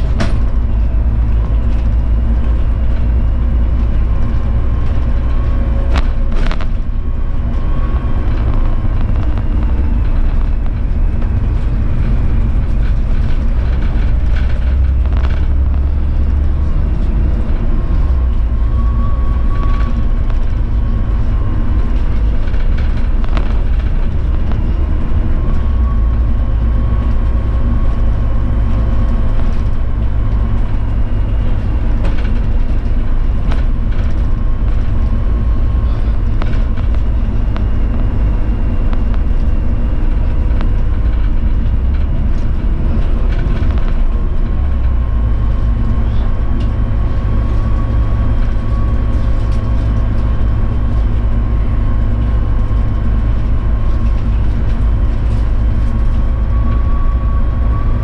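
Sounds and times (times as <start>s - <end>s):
knocks and rattles: 0.0s - 27.9s
bus engine and tyres rumbling: 0.0s - 58.0s
faint steady whine: 0.0s - 58.0s.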